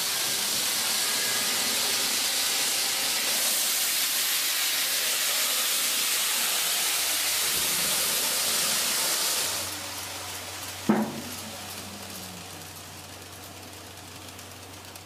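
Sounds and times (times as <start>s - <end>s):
model trains rolling on track: 0.0s - 15.0s
sharp knock: 10.9s - 11.3s.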